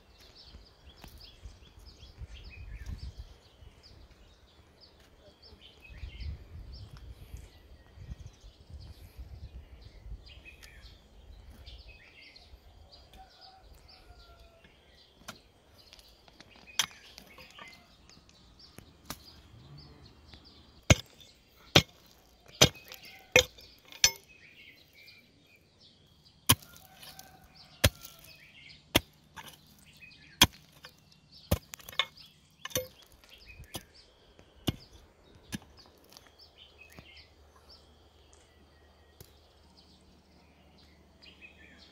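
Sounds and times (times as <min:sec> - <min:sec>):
small birds chirping: 0:00.0 - 0:41.9
pickaxe striking stony ground: 0:15.2 - 0:17.8, 0:19.0 - 0:19.4, 0:20.8 - 0:24.4, 0:26.5 - 0:37.1.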